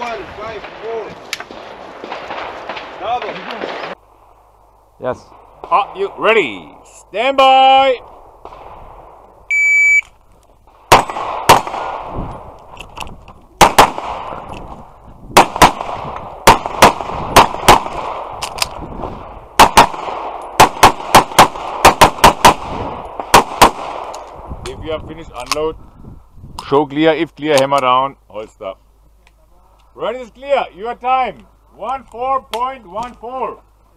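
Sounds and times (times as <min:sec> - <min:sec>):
shot timer beep: 0:09.5 - 0:10.1
pistol shots: 0:10.9 - 0:12.1, 0:13.6 - 0:14.5, 0:15.4 - 0:18.7, 0:19.6 - 0:24.2.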